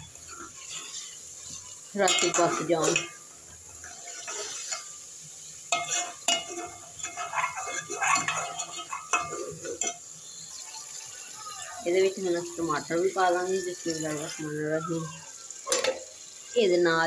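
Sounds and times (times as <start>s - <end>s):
metal spoon stirring and scraping pot: 0.0s - 14.6s
light sizzle: 0.0s - 17.0s
spoon clinking against pot: 5.7s - 10.1s.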